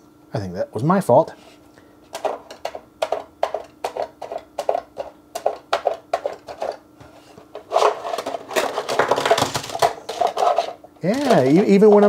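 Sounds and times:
plastic rattling and scraping: 2.1s - 12.0s.

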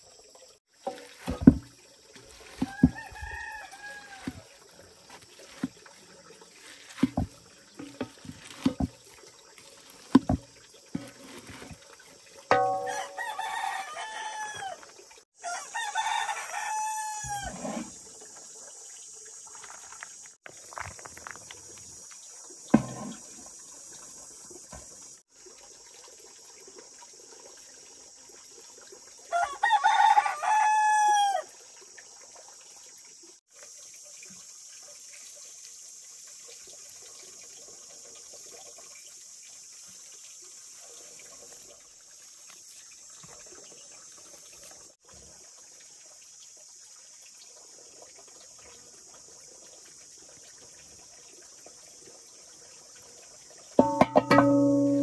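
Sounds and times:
rooster crowing: 2.6s - 4.4s, 12.8s - 14.8s, 15.4s - 17.6s, 29.3s - 31.5s.

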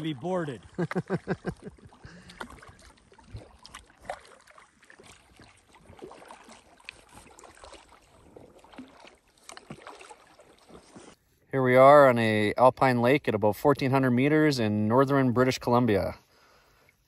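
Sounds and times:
paddle splashes and drips: 0.0s - 11.2s.

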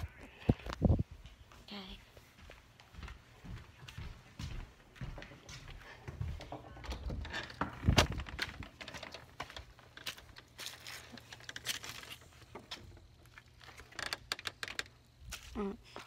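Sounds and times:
clicks and rustles: 6.4s - 16.0s.

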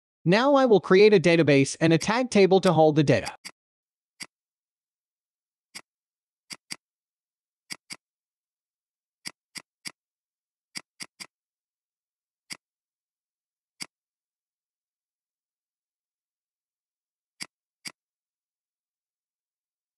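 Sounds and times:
computer mouse clicking: 6.5s - 6.8s, 9.2s - 10.0s, 10.7s - 11.3s.

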